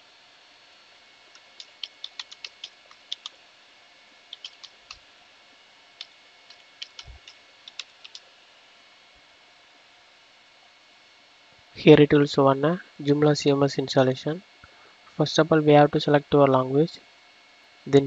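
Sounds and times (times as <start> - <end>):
computer keyboard keys clicking: 1.4 - 3.4, 4.3 - 5.0, 6.0 - 8.2.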